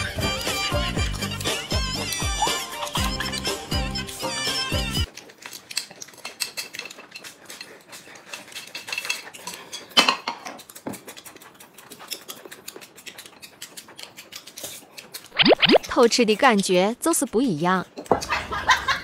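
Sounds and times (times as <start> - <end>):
chopsticks clicking on porcelain: 10.3 - 15.3.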